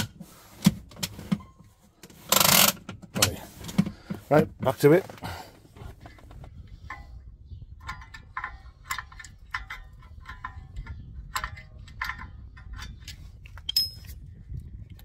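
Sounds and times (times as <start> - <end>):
ringing metallic clicks: 13.6 - 14.2.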